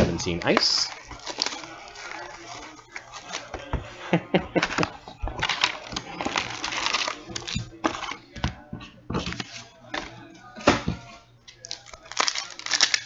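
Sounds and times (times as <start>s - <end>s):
plastic wrap crinkling and tearing: 0.5s - 3.5s, 4.8s - 8.2s, 11.5s - 13.0s.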